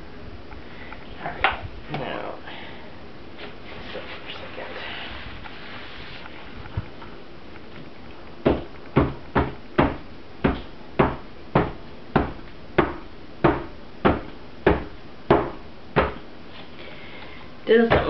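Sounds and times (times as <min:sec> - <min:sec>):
mold thumping on a table: 0:08.4 - 0:16.2.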